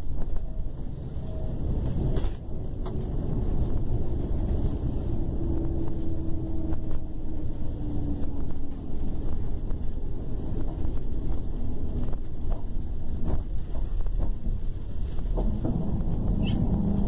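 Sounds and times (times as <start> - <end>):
faint whine shifting in pitch: 0.0 - 13.4
diesel engine rumbling: 0.0 - 17.0.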